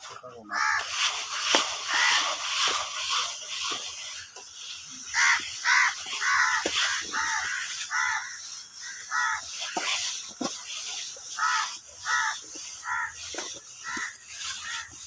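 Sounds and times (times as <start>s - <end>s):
crow cawing: 0.5s - 1.0s, 1.8s - 2.3s, 5.0s - 9.6s, 11.3s - 13.2s, 13.8s - 14.9s.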